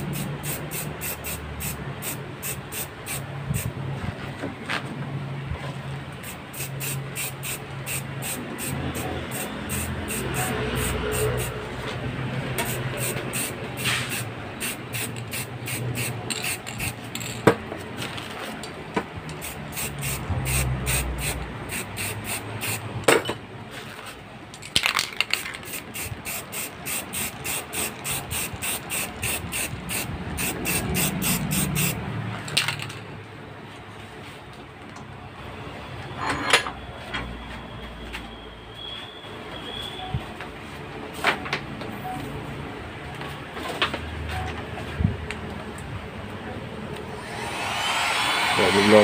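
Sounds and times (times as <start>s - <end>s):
spray paint can hissing: 0.0s - 3.7s, 6.2s - 11.6s, 12.6s - 17.3s, 19.3s - 22.9s, 25.2s - 32.0s.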